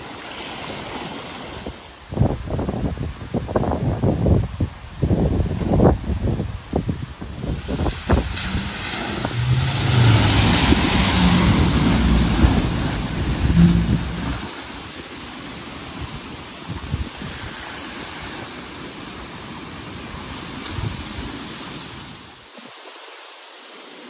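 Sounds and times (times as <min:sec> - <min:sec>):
flowing water rushing: 0:00.0 - 0:02.2, 0:06.7 - 0:24.0
water splashing and surging: 0:00.0 - 0:03.6, 0:05.9 - 0:24.0
car engine revving: 0:08.1 - 0:14.5.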